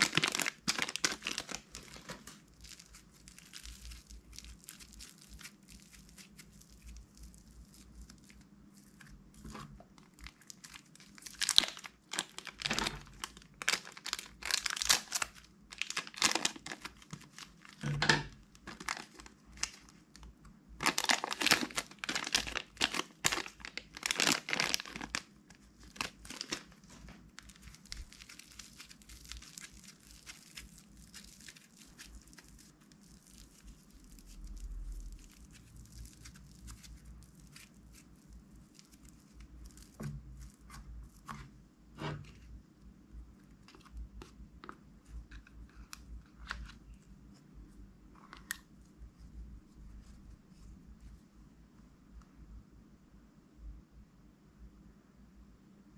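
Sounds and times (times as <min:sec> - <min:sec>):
plastic bag crinkling: 0:00.0 - 0:41.5
slime handling: 0:00.0 - 0:42.6.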